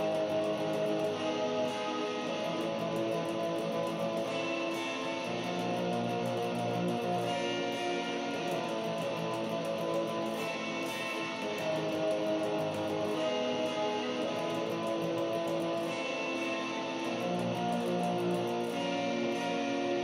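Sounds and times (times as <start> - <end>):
black metal guitar chords: 0.0 - 20.0.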